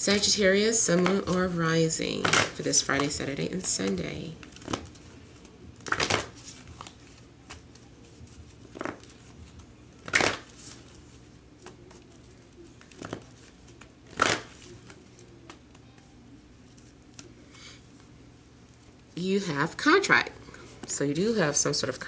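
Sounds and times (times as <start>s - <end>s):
cards being shuffled: 2.2s - 18.1s.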